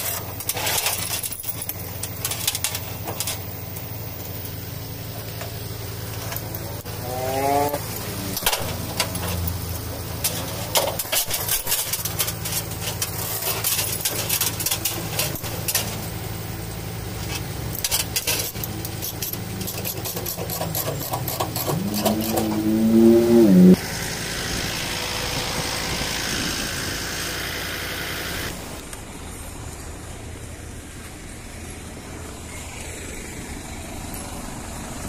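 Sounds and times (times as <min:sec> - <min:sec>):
steel chains clinking and clanking: 0:00.0 - 0:03.5, 0:17.7 - 0:22.8
diesel engine idling: 0:01.7 - 0:28.8.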